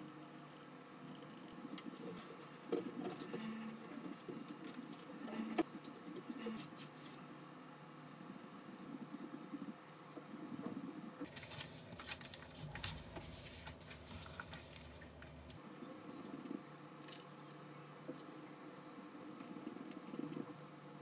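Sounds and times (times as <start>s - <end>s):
faint low hum: 0.0s - 21.0s
paper rustling: 11.3s - 15.4s.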